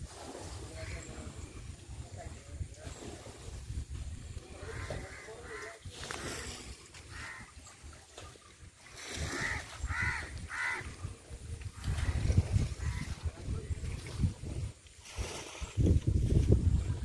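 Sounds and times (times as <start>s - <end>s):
crows cawing: 7.1s - 7.5s, 9.2s - 11.0s.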